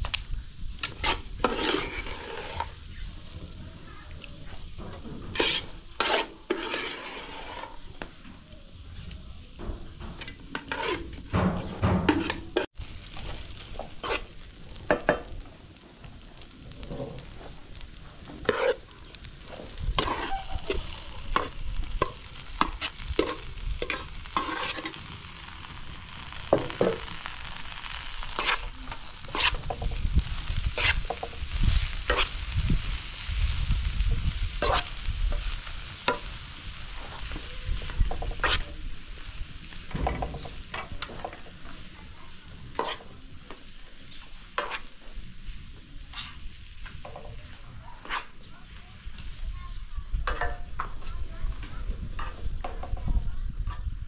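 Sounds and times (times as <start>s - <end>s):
chicken sizzling in pan: 0.0s - 50.8s
metal utensils scraping pots: 0.8s - 2.8s, 4.9s - 7.9s, 10.0s - 12.7s, 18.3s - 25.2s.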